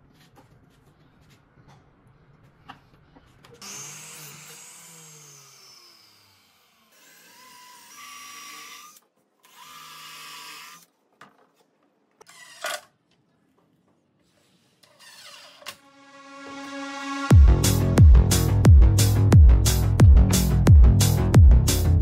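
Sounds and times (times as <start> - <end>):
cordless drill driving screws: 3.6 - 10.9.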